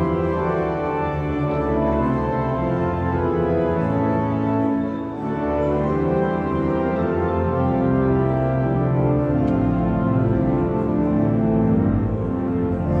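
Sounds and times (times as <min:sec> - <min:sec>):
pipe organ playing a hymn: 0:00.0 - 0:13.0.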